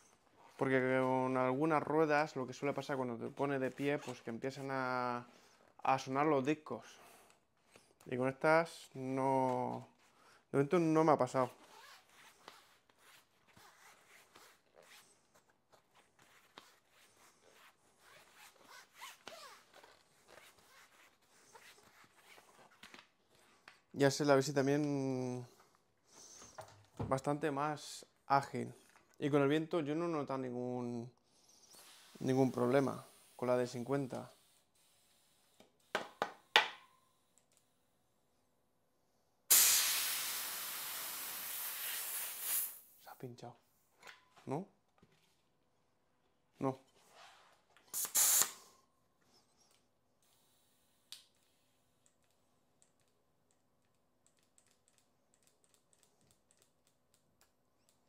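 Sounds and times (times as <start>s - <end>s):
air hissing out of tyre: 39.5s - 43.0s, 47.9s - 48.7s
small irregular clicks: 52.0s - 58.0s.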